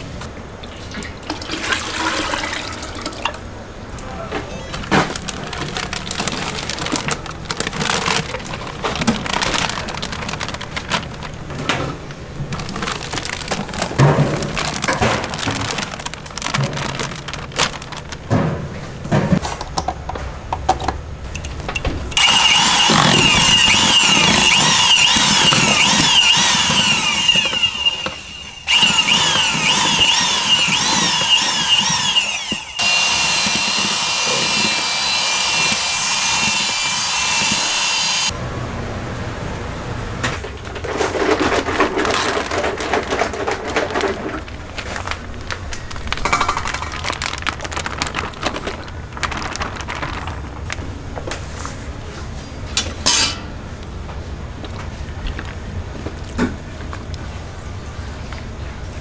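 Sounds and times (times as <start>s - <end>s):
kitchen clatter: 40.2s - 50.5s, 52.7s - 53.6s.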